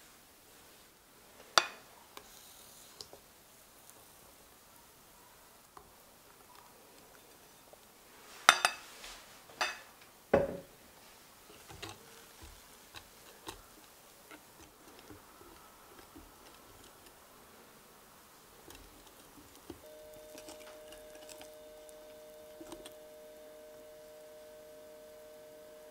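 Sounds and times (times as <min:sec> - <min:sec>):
kitchenware knocks: 0:09.6 - 0:10.7
whisk ticking against glass bowl: 0:11.5 - 0:17.3, 0:18.5 - 0:24.7.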